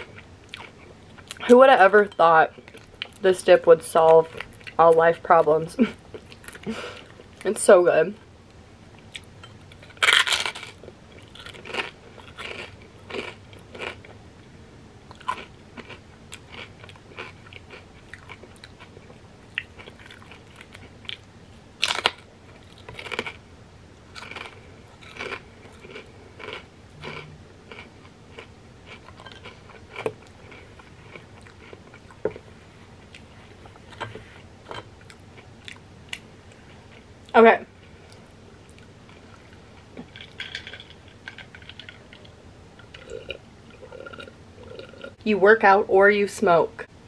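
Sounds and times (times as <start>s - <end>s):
crunchy chewing: 9.0s - 14.2s, 15.1s - 23.4s, 24.1s - 32.5s
chips crunching: 9.8s - 14.2s, 21.8s - 23.4s, 24.1s - 32.2s.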